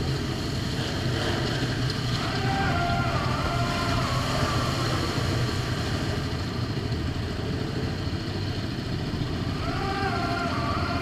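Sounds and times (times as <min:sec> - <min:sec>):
atv engine rumbling: 0:00.0 - 0:11.0.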